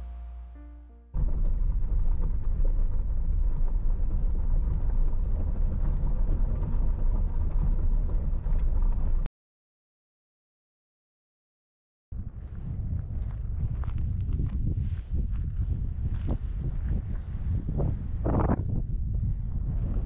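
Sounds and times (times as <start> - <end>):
background music: 0.0 - 1.1
loud unsteady low rumble: 0.0 - 9.1.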